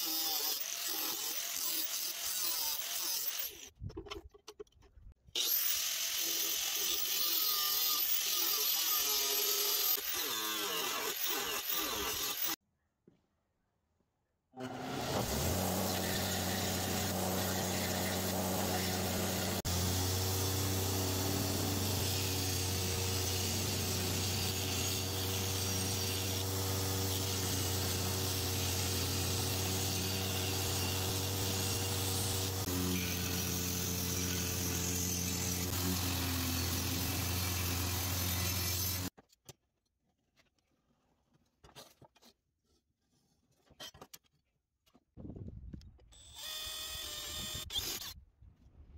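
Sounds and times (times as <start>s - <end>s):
belt grinder grinding steel: 0.0s - 3.7s, 5.4s - 12.6s, 14.6s - 39.2s.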